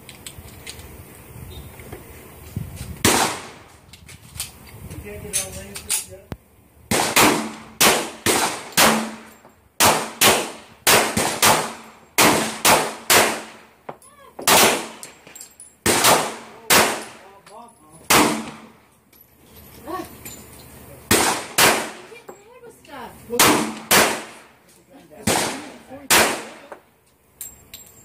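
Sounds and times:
pistol shots with ringing echo: 0:06.9 - 0:13.7, 0:14.5 - 0:15.1, 0:15.9 - 0:17.2, 0:18.1 - 0:18.8, 0:21.1 - 0:22.1, 0:23.4 - 0:24.5, 0:25.2 - 0:26.7.

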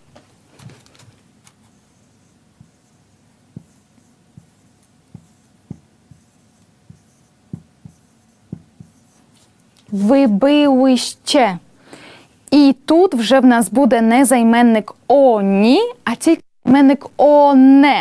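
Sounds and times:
marker writing on whiteboard: 0:00.0 - 0:10.3.

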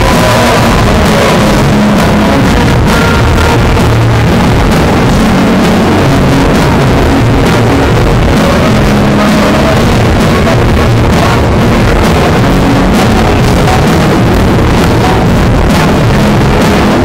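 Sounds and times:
distorted saxophone: 0:00.0 - 0:17.0.

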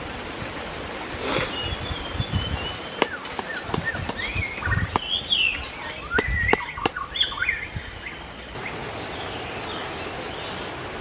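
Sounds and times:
birds chirping: 0:00.0 - 0:11.0
steady outdoor hiss: 0:00.0 - 0:11.0
knife chopping into earth: 0:06.1 - 0:07.0.

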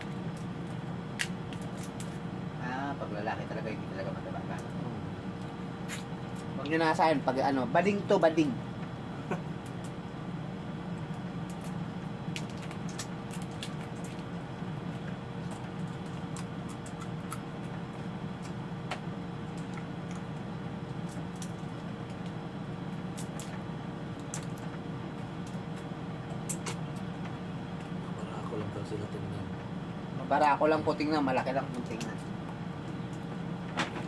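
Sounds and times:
low electrical hum: 0:00.0 - 0:34.0
crab shells cracking: 0:11.4 - 0:14.3, 0:15.0 - 0:17.8, 0:23.1 - 0:23.6.

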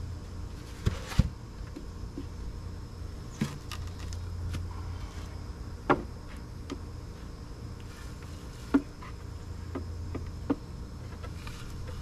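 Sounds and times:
honeybees humming: 0:00.0 - 0:12.0
wooden beehive boxes knocking: 0:08.6 - 0:12.0.

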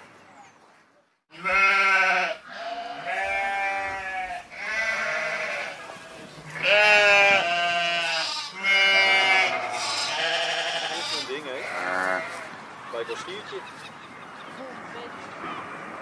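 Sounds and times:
goats bleating: 0:01.3 - 0:12.6.

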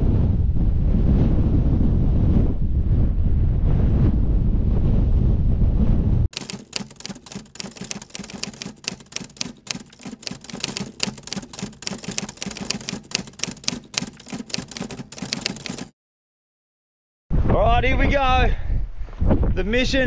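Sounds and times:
typewriter keys clacking: 0:06.3 - 0:15.9.

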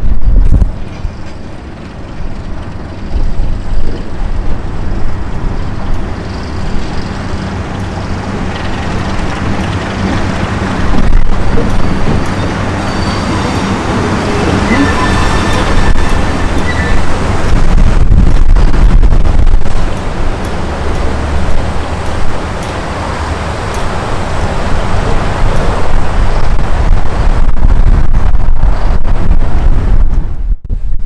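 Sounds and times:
diesel locomotive engine hum: 0:00.0 - 0:31.0
rumbling train noise: 0:00.0 - 0:31.0.

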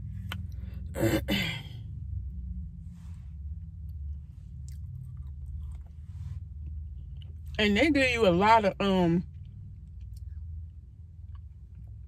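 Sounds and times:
steady low hum: 0:00.0 - 0:12.0
person chewing ice cream: 0:04.5 - 0:06.0.

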